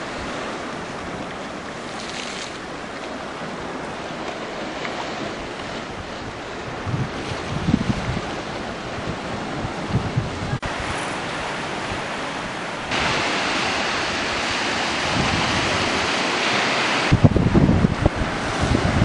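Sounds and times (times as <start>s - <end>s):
surf breaking over rocks: 0.0s - 19.0s
wind buffeting microphone: 0.0s - 19.0s.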